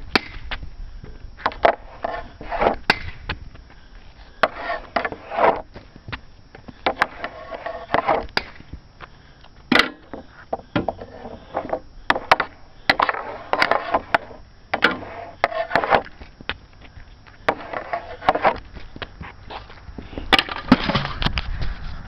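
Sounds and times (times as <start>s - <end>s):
stick blade scraping: 1.4s - 3.0s, 4.3s - 5.7s, 6.8s - 8.6s, 10.9s - 16.2s, 17.5s - 18.7s
hockey stick striking pucks: 4.4s - 5.6s, 6.8s - 8.6s, 10.8s - 16.1s, 17.5s - 18.6s.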